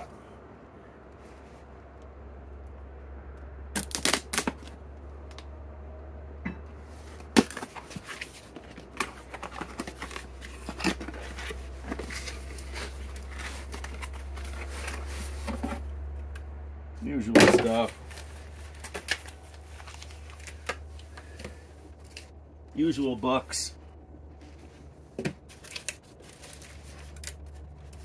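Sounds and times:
steady low hum: 0:00.0 - 0:28.0
cardboard clicks and rips: 0:03.8 - 0:05.4, 0:07.2 - 0:15.8, 0:17.5 - 0:22.3, 0:25.2 - 0:28.0
cardboard and packaging rustling: 0:06.8 - 0:16.6, 0:17.2 - 0:28.0.

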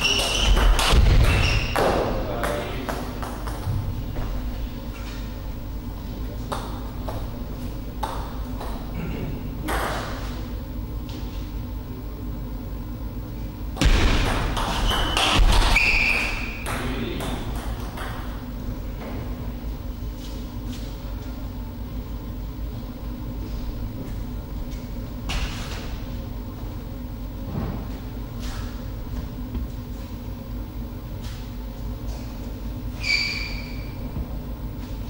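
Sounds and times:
low hall hum: 0:00.0 - 0:35.0
short high squeal: 0:15.7 - 0:16.6, 0:33.0 - 0:34.0.

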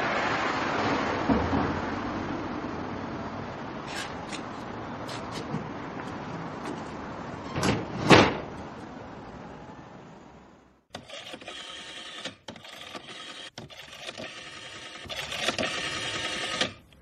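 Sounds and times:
door pulled shut with knocks: 0:07.5 - 0:08.5
choppy mechanical whirring and clicking: 0:10.9 - 0:17.0.

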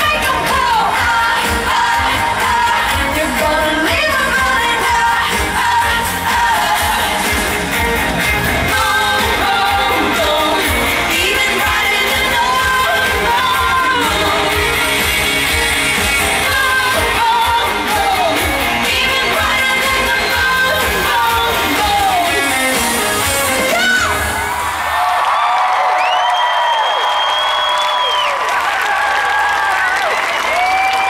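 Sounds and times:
woman singing: 0:00.0 - 0:07.8, 0:08.6 - 0:15.2, 0:15.8 - 0:24.4
live pop band: 0:00.0 - 0:25.3.

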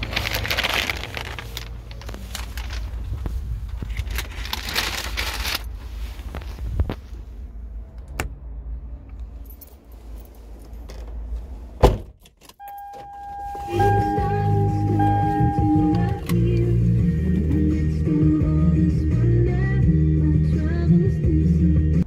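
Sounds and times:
handling rustle: 0:00.0 - 0:07.4
car keys jangling: 0:09.3 - 0:11.1, 0:12.2 - 0:16.6.

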